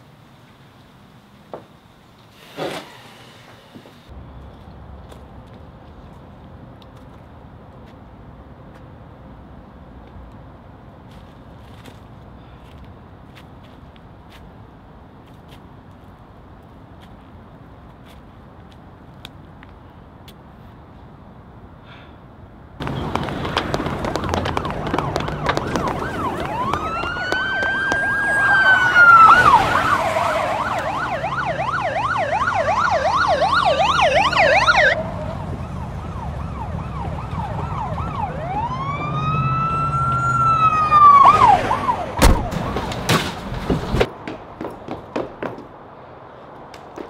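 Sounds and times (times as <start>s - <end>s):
police siren wailing and yelping: 23.8s - 42.2s
heavy thump: 42.2s - 44.1s.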